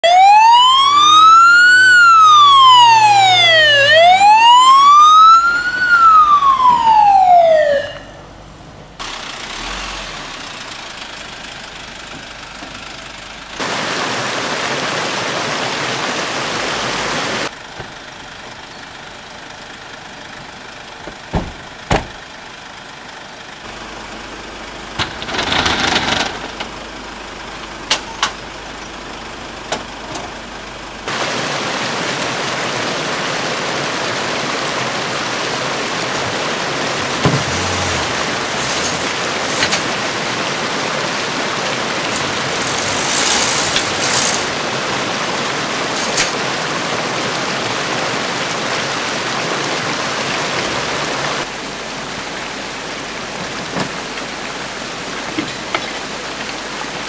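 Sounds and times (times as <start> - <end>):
fire engine siren wailing: 0.0 - 8.4.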